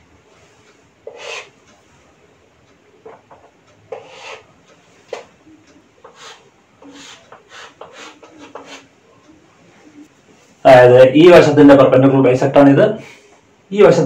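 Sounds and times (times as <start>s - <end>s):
chalk scratching on a chalkboard: 1.0s - 1.5s, 3.9s - 4.5s, 6.0s - 8.9s.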